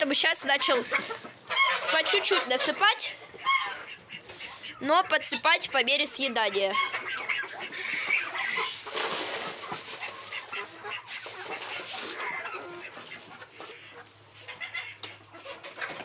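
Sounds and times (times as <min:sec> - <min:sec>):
chickens clucking: 0:00.0 - 0:16.0
grain pouring rattle: 0:08.9 - 0:10.7.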